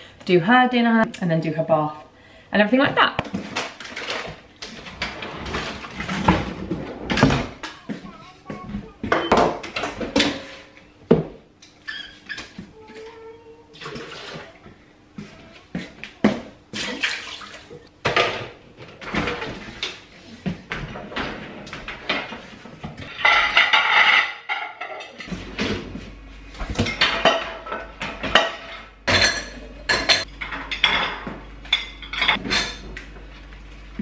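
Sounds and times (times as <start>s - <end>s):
crockery and cutlery clinking: 23.0s - 25.4s, 26.8s - 33.0s.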